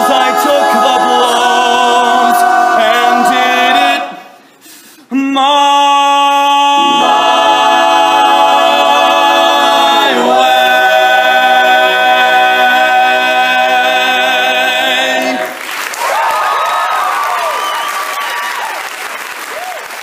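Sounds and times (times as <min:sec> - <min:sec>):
male a cappella group singing: 0:00.0 - 0:04.4, 0:05.1 - 0:15.6
audience applause: 0:15.4 - 0:20.0.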